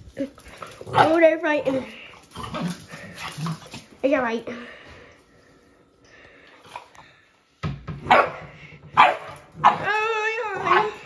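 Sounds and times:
dogs barking: 8.0s - 8.4s, 9.0s - 10.0s.

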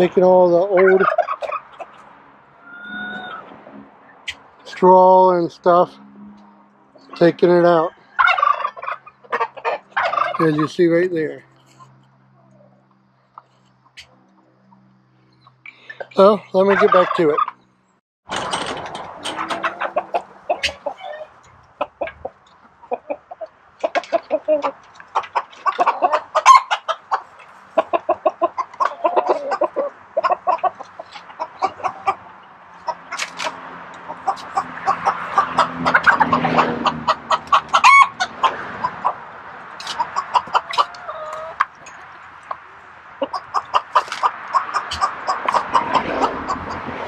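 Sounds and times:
chickens clucking: 0.0s - 17.6s, 18.3s - 47.0s.

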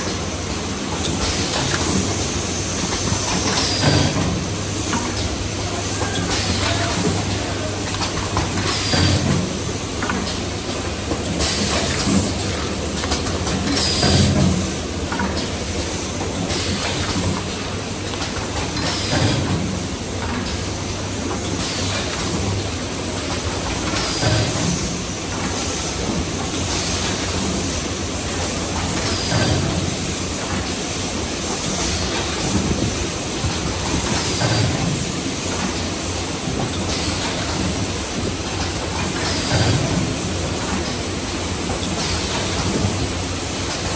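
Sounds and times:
machine clattering: 31.5s - 35.9s.

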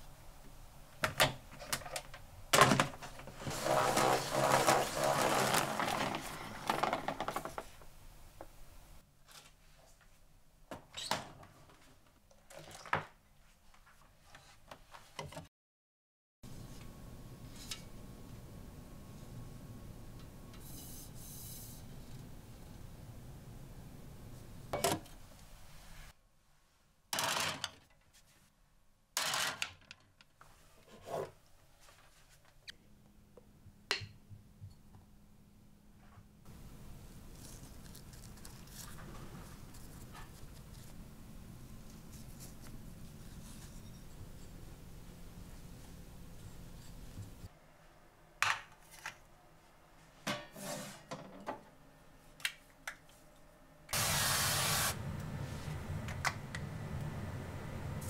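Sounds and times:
objects scraping in cabinet: 3.0s - 7.6s, 30.6s - 31.4s, 50.4s - 51.3s.

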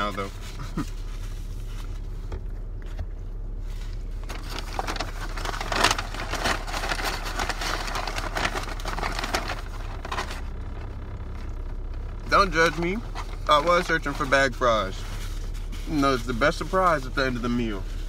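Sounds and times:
car low hum: 0.0s - 18.0s
paper bag rustling and crinkling: 3.6s - 10.6s, 12.3s - 18.0s.

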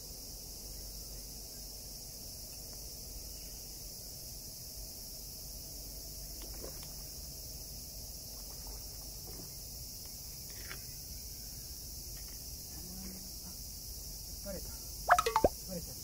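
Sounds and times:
crickets and katydids shrilling: 3.2s - 16.0s.

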